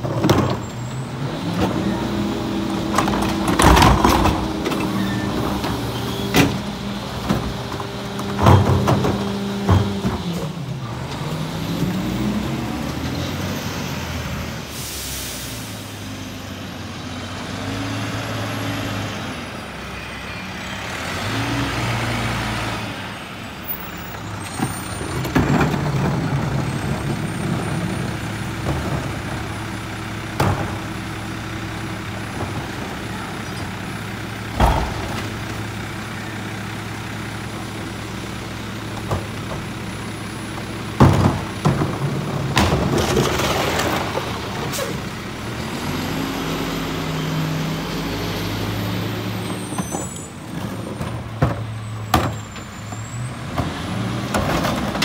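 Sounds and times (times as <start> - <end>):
cart banging against hopper: 2.8 - 10.6, 24.5 - 31.0, 34.5 - 35.8, 40.6 - 45.0
air brake hiss: 14.7 - 15.9
garbage truck engine idling: 23.6 - 45.7.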